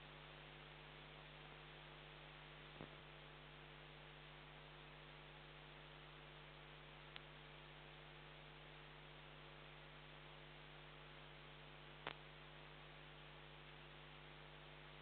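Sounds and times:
electrical hum and hiss: 0.0 - 15.0
faint clicks: 7.1 - 7.3, 12.0 - 12.3.

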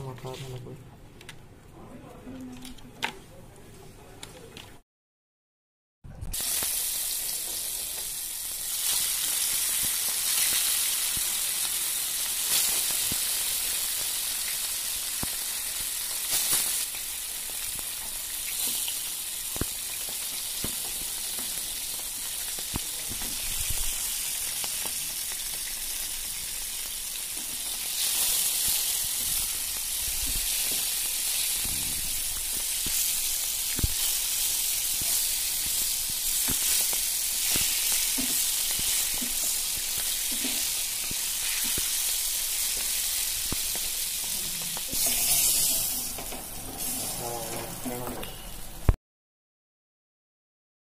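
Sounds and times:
fish sizzling in hot oil: 6.3 - 47.2.

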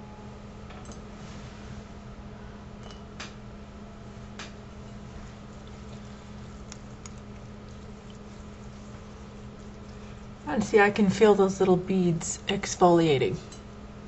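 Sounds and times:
steady low hum: 0.0 - 14.0
fingertips squishing cleanser: 4.4 - 11.8.

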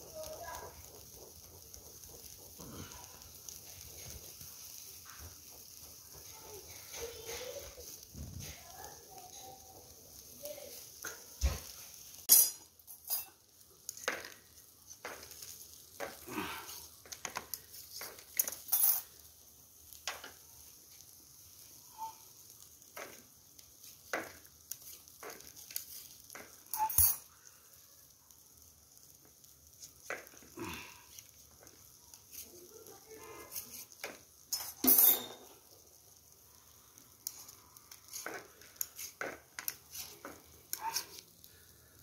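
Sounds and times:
metal skewers and plates clinking: 12.2 - 14.4, 17.1 - 19.3, 24.1 - 27.3, 33.5 - 35.7, 37.2 - 41.2.

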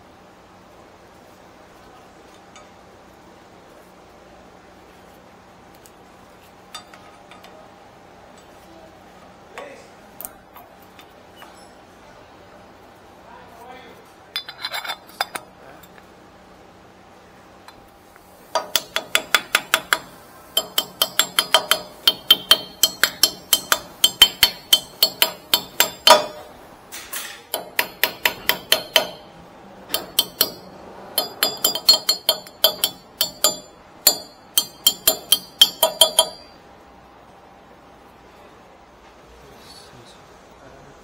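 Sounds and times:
hammer striking metal: 18.5 - 26.6, 27.2 - 36.6.

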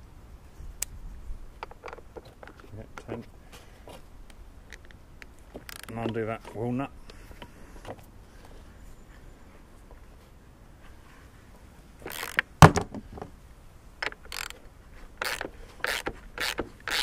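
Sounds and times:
ratchet clicking: 12.1 - 12.4, 14.0 - 14.6, 15.2 - 17.0.

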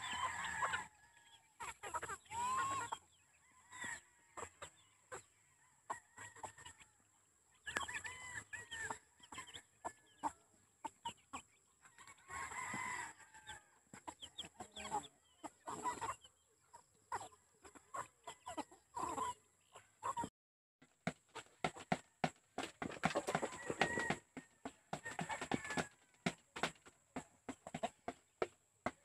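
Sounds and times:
chickens clucking: 0.0 - 29.0.

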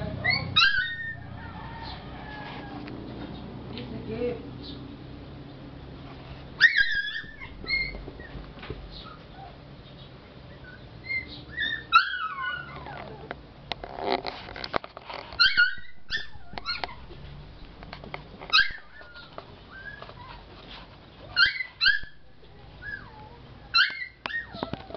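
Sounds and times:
puppy whimpering and yipping: 0.1 - 2.8, 6.6 - 9.6, 10.5 - 13.4, 15.4 - 17.2, 18.4 - 24.9.

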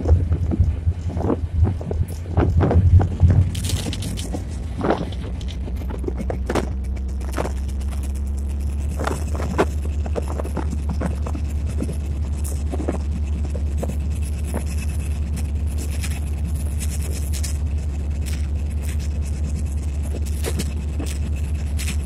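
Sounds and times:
train knocks and rattles: 0.0 - 7.6
diesel engine drone: 0.0 - 22.0.

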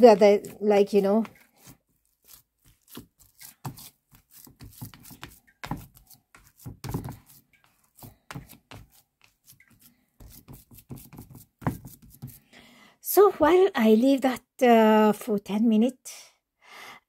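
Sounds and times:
hands squelching soft mixture: 0.0 - 12.4.

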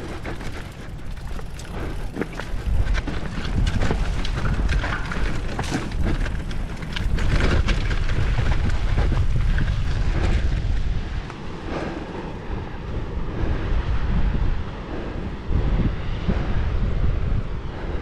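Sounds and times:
bike clicks and rattles: 0.0 - 11.4
bike tyres on dirt: 0.0 - 13.5
wind buffeting microphone: 0.0 - 18.0.

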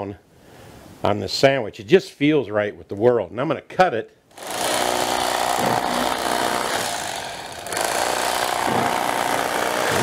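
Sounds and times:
electric carving knife buzzing: 4.3 - 10.0.

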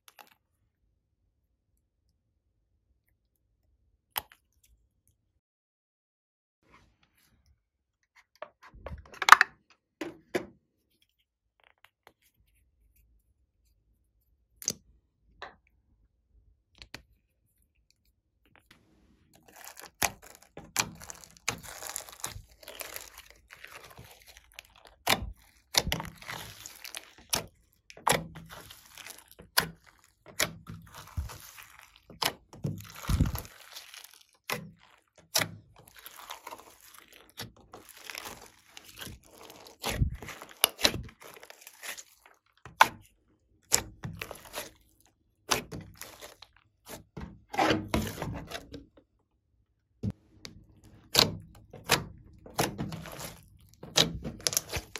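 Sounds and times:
wet slime squishing: 16.8 - 49.2, 50.0 - 54.9.

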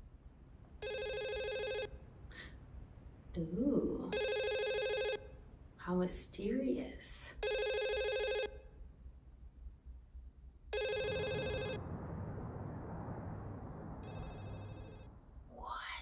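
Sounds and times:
low background hiss: 0.0 - 16.0
telephone ringing: 0.8 - 1.9, 4.2 - 5.3, 7.4 - 8.6, 10.7 - 11.8.

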